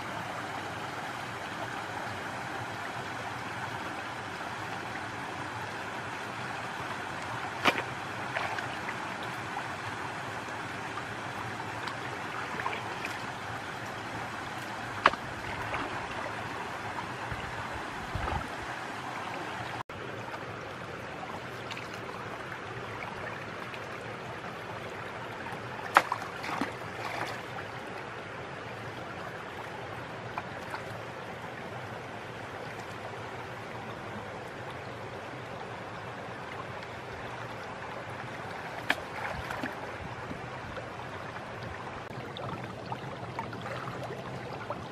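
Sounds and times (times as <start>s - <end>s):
water sloshing and trickling: 0.0s - 44.9s
sharp knocks of pole: 15.0s - 15.2s.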